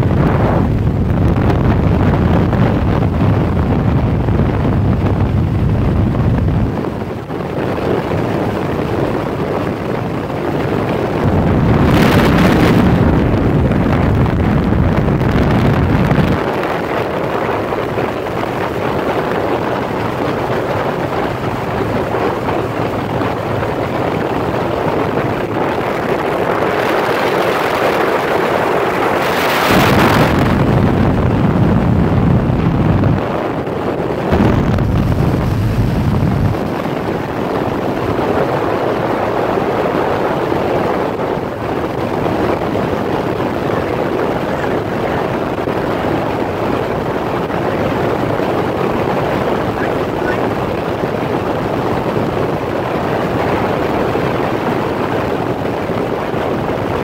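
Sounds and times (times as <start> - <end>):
heavy low rumble: 0.0 - 27.3, 28.0 - 39.6, 41.4 - 46.9, 47.5 - 51.4
wind rushing over microphone: 0.0 - 57.0
motorcycle engine running: 18.3 - 27.3, 34.2 - 38.2.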